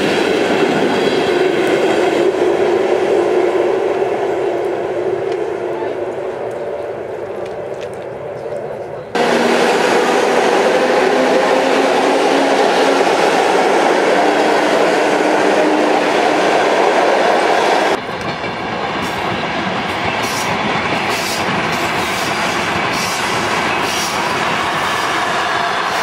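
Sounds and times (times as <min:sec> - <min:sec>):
electric train running: 0:09.2 - 0:26.0.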